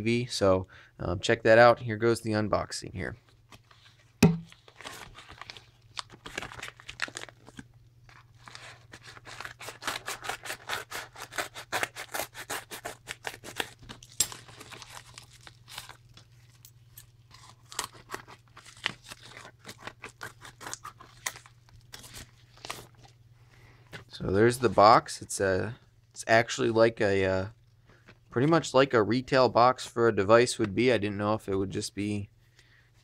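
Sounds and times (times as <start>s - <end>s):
plastic crinkling: 3.4s - 11.3s, 13.1s - 23.2s
scissors snipping plastic: 9.1s - 16.0s.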